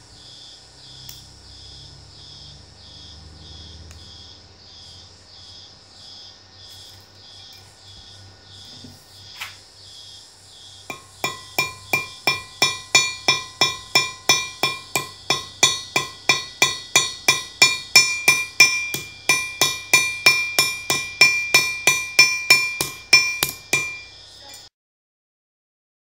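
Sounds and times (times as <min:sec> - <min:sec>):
hammer tapping rivets on metal: 0:10.9 - 0:24.1.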